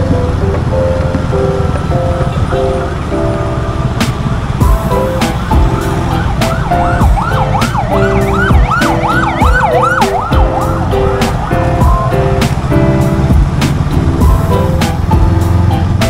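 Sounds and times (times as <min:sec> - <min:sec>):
background music with steady beat: 0:00.0 - 0:16.0
siren-like wail: 0:05.5 - 0:11.8.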